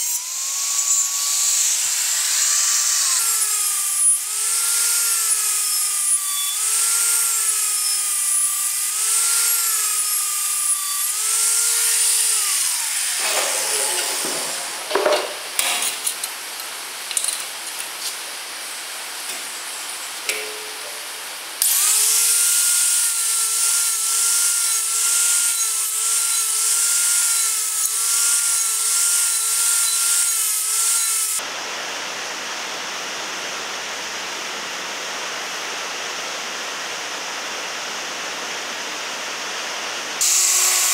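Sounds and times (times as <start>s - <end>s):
angle grinder whining: 0.0s - 16.0s, 19.3s - 31.4s, 40.2s - 40.9s.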